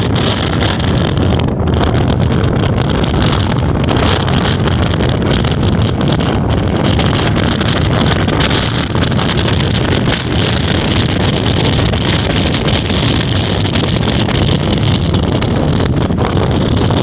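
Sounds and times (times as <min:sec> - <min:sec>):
ferry engine drone: 0:00.0 - 0:17.0
wind noise on microphone: 0:00.0 - 0:17.0.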